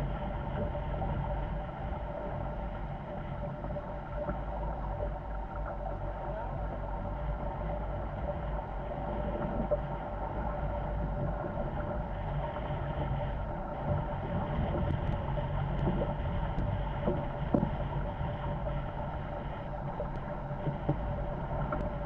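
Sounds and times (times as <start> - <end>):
water rushing along hulls: 0.0 - 22.0
wind buffeting microphone: 10.9 - 22.0.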